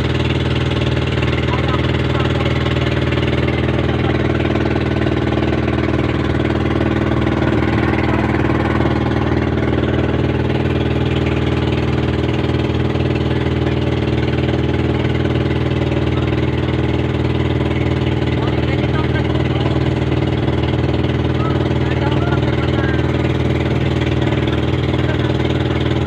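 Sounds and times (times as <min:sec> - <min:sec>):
boat engine droning: 0:00.0 - 0:26.0.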